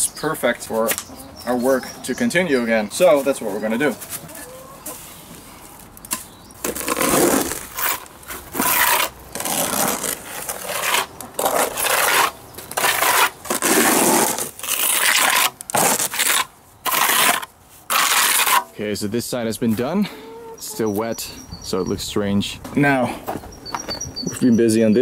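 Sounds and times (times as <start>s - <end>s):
trowel scraping mortar: 6.6s - 18.7s.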